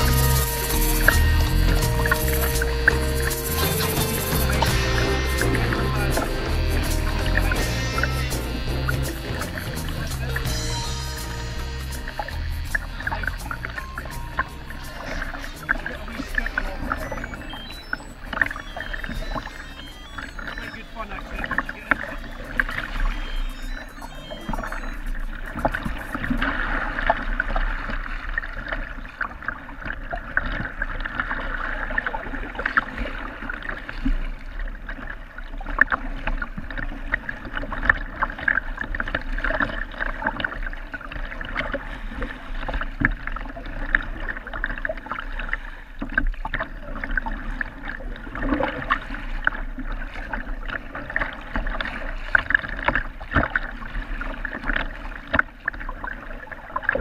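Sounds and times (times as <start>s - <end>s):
water lapping against kayak hull: 12.0s - 19.6s, 20.4s - 23.4s, 24.2s - 57.0s.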